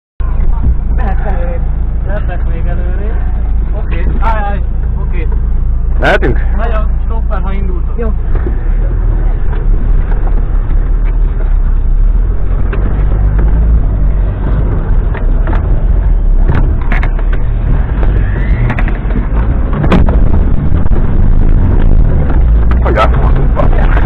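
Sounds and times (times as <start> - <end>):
vehicle engine rumbling: 0.2 - 24.0
vehicle body knocks and rattles: 12.5 - 24.0.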